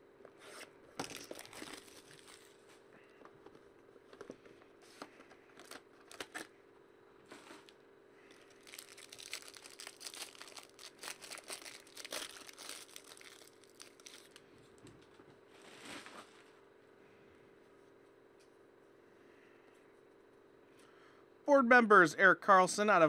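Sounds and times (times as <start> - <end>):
plastic shrink-wrap crinkling: 1.0 - 2.7, 8.3 - 14.4.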